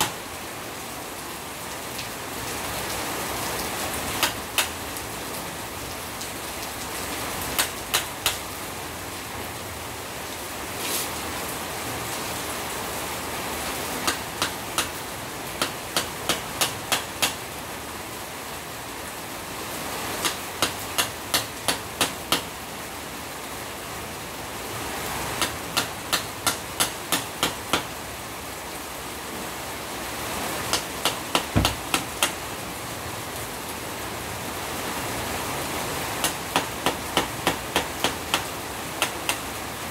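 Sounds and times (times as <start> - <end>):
rain hissing: 0.0 - 39.9
hammer striking chisel on metal: 15.6 - 17.4, 20.2 - 22.5, 25.4 - 27.9, 30.7 - 32.3, 36.2 - 39.4.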